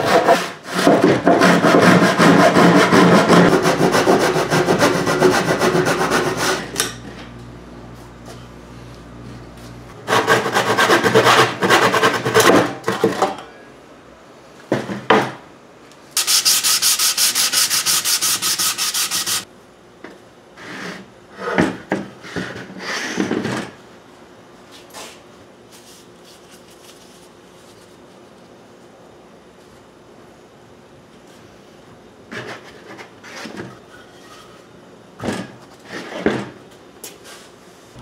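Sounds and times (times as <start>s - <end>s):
sandpaper scraping wood: 0.0s - 6.7s, 10.1s - 12.5s, 16.2s - 19.5s.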